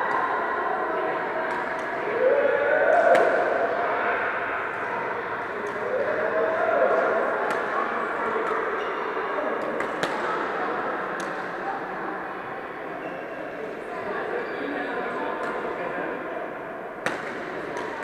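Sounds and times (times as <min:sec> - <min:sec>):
racket hitting shuttlecock: 0:09.6 - 0:10.3, 0:17.0 - 0:18.0.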